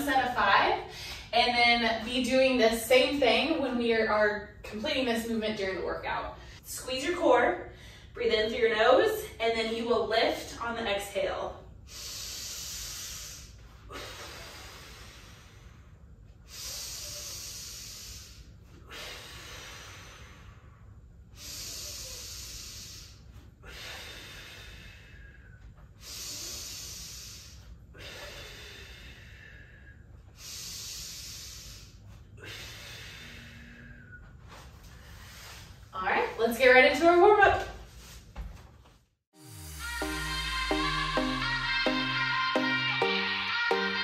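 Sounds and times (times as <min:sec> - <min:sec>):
woman breathing slowly: 0:00.8 - 0:01.3, 0:07.7 - 0:08.2, 0:11.7 - 0:36.0.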